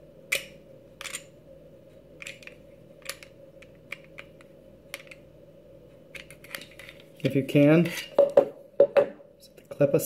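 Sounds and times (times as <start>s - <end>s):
pistol parts clicking: 0.3s - 1.3s, 2.2s - 5.2s.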